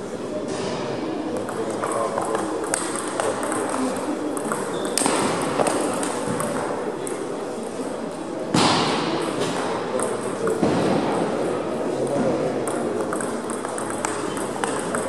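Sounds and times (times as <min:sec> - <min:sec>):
murmur of large hall: 0:00.0 - 0:15.0
table tennis ball clicking: 0:01.4 - 0:07.2, 0:12.6 - 0:15.0.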